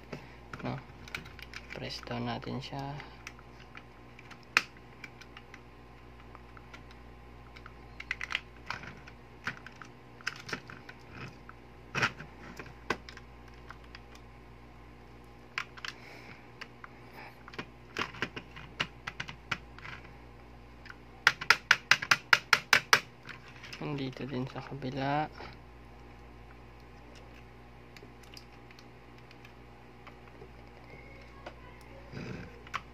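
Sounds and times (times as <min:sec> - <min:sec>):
plastic and metal parts clicking: 0:00.5 - 0:02.1, 0:03.0 - 0:14.2, 0:16.6 - 0:20.1.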